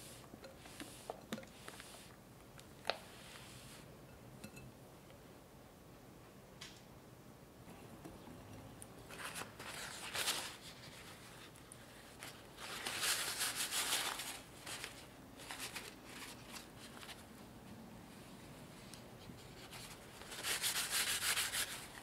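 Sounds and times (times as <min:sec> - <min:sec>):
paper towel rustling: 0:09.1 - 0:17.3.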